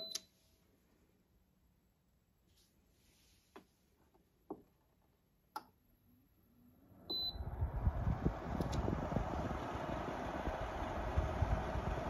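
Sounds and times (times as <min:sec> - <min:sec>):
dehumidifier fan rushing air: 0:06.8 - 0:12.0.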